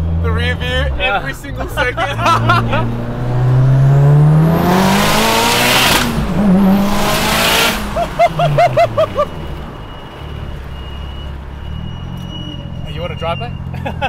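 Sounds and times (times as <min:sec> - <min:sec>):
people laughing: 0:01.4 - 0:03.0, 0:07.8 - 0:09.4, 0:13.7 - 0:14.0.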